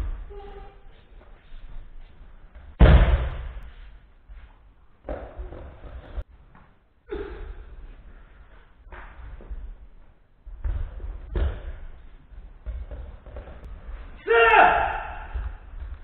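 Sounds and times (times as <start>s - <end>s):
thumps and movement on mats: 0.0s - 6.8s, 7.8s - 14.1s
body slamming onto mat: 2.8s - 3.6s.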